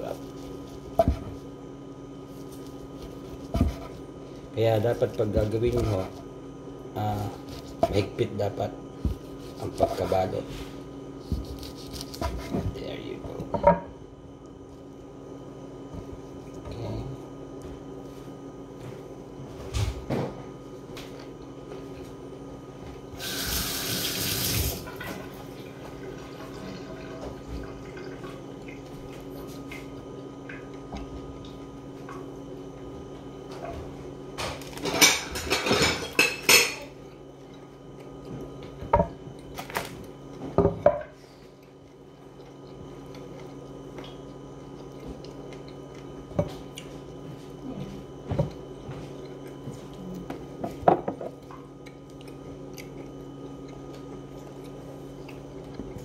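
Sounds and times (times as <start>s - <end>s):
steady low hum: 0.0s - 56.0s
dishes and cutlery clattering: 34.8s - 36.8s.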